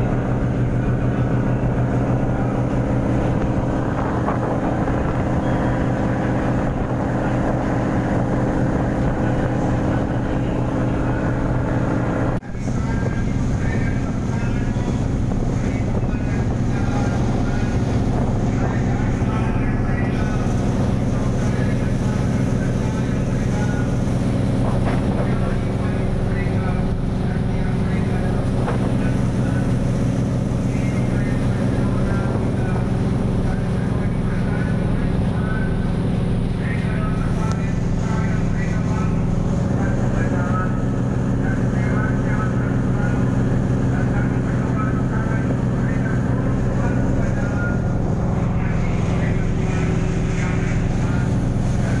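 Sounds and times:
ship engine drone: 0.0s - 52.0s.

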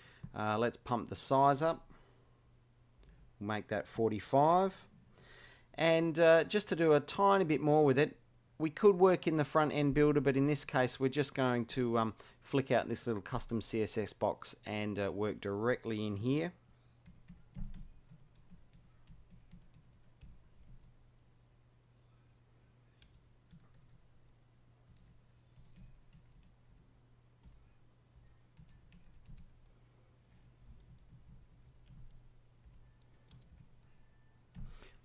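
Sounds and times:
low steady hum: 0.0s - 35.0s
keyboard typing: 17.0s - 21.3s, 23.0s - 26.8s, 27.4s - 29.7s, 30.3s - 34.9s.

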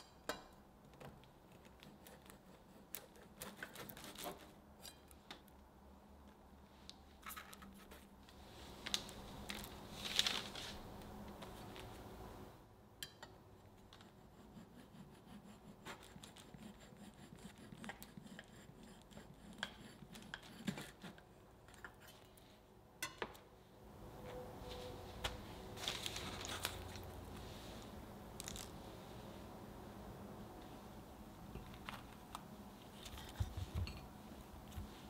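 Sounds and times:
knife rasping through cake: 1.6s - 5.0s, 14.0s - 22.0s.

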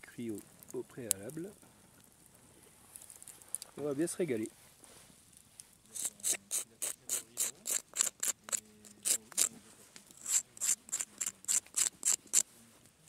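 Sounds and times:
knife scraping charred crust: 5.9s - 12.5s.

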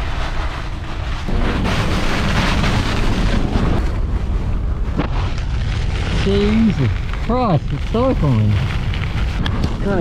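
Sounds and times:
heavy rain pounding on vehicle: 5.8s - 10.0s.

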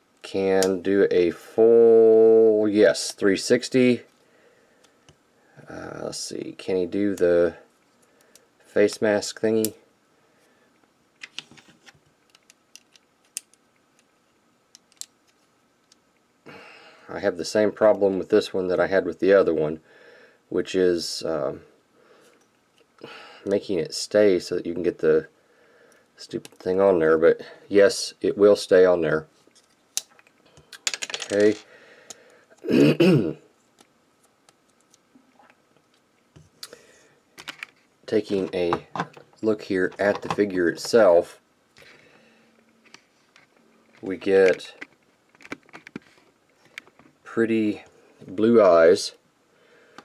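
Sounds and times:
man speaking: 31.2s - 31.6s, 38.1s - 41.4s, 44.0s - 44.8s, 47.3s - 49.2s.

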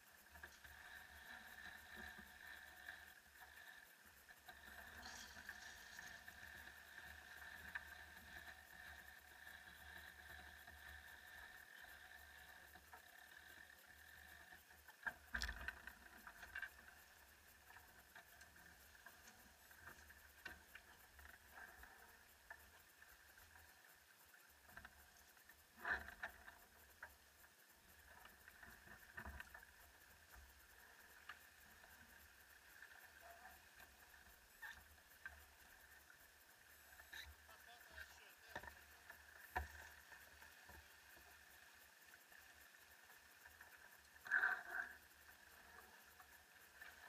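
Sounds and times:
faint steady hiss: 0.0s - 47.0s.

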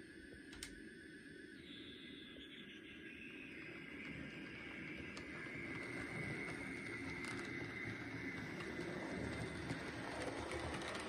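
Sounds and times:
faint high whine: 0.0s - 11.0s
model train rumbling on rails: 3.4s - 11.0s.

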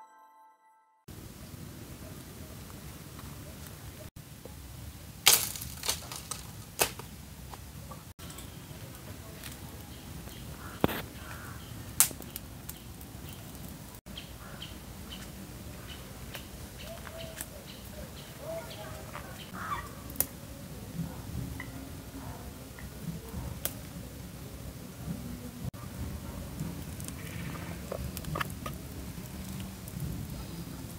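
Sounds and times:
small birds chirping: 8.2s - 19.9s.

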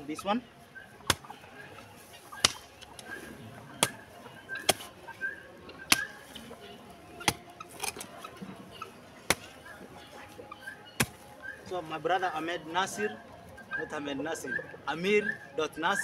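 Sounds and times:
hoe chopping into soil: 4.6s - 4.9s, 11.0s - 11.2s.

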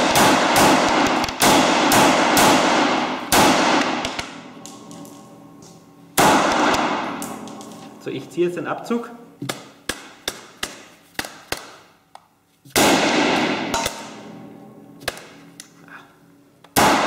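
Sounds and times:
loud gunshot bang: 0.0s - 4.4s, 6.2s - 7.4s, 12.8s - 14.2s, 16.8s - 17.0s.

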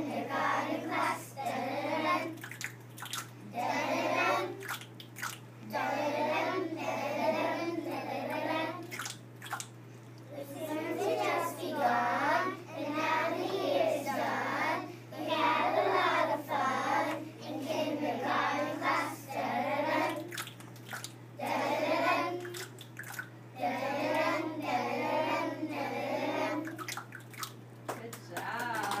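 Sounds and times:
children singing: 0.0s - 2.4s, 3.6s - 4.7s, 5.7s - 8.9s, 10.4s - 20.2s, 21.4s - 22.5s, 23.6s - 26.8s
steady low hum: 0.0s - 29.0s.

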